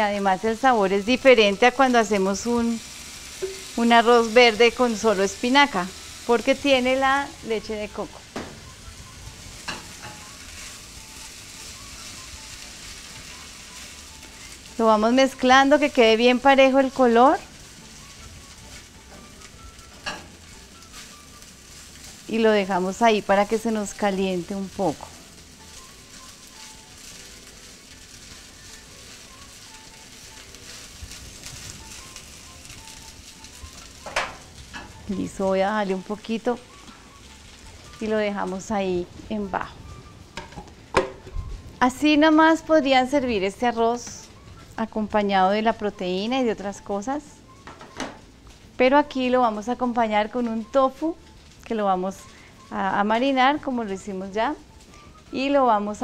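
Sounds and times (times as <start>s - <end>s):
faint background music: 0.0s - 56.0s
food sizzling in frying pan: 0.0s - 56.0s.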